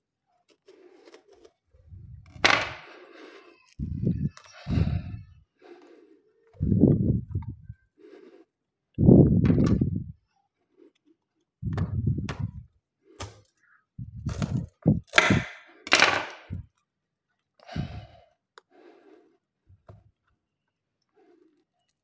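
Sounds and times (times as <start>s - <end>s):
fruit rind cracking and tearing: 0.4s - 2.4s.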